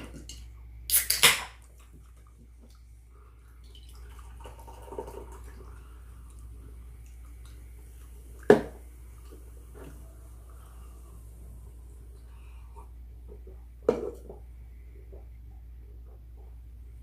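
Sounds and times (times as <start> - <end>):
can tab cracking open with hiss: 0.9 - 1.6
soda pouring into mug: 3.6 - 11.3.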